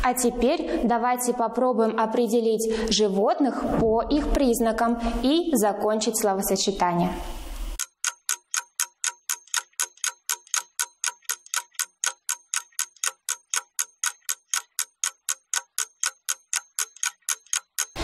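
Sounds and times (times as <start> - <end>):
clock ticking: 7.8 - 18.0.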